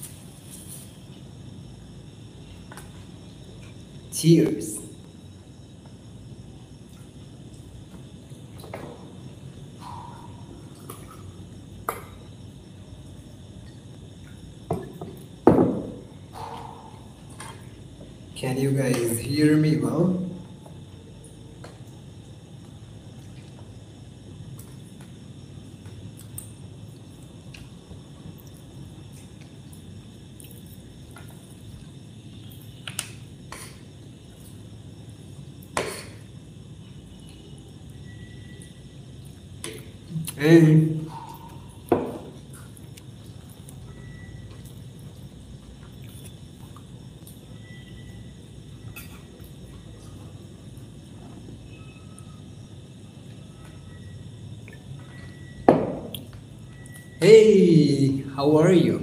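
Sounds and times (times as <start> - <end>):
glass set down on table: 55.7 - 56.1.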